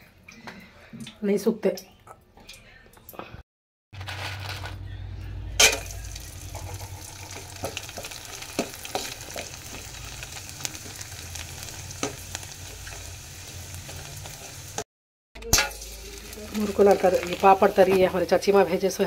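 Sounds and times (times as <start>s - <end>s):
food sizzling in hot oil: 5.6s - 14.9s, 15.5s - 18.8s.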